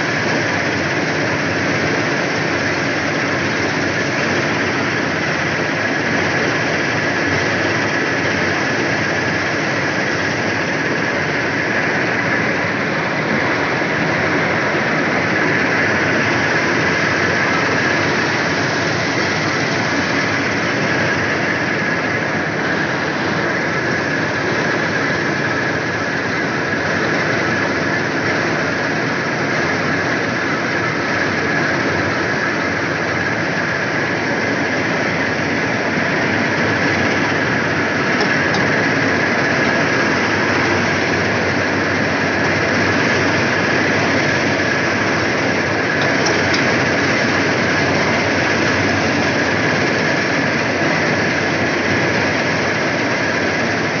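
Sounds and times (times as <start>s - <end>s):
combine harvester engine and threshing: 0.0s - 54.0s
high-pitched whine: 0.0s - 54.0s.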